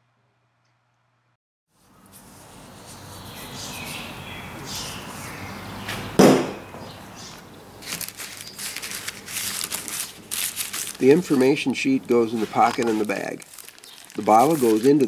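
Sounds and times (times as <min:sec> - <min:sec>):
hands rubbing plastic bottle: 0:07.8 - 0:15.0
plastic bag crinkling: 0:07.8 - 0:15.0.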